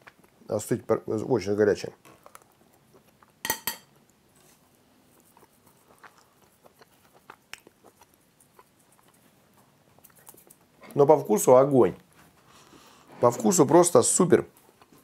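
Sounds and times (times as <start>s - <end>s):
person chewing food: 0.0s - 0.5s, 2.0s - 10.8s, 14.5s - 15.0s.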